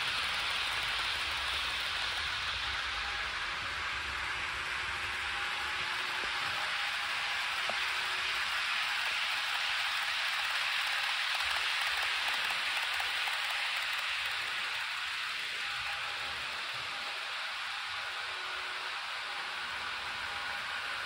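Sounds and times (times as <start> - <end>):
model train wheels clattering: 0.0 - 3.9, 4.8 - 16.0.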